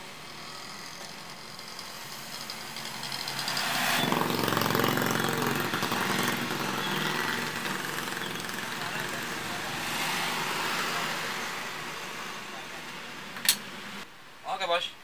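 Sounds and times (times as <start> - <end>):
vehicle engine running: 0.0 - 9.8.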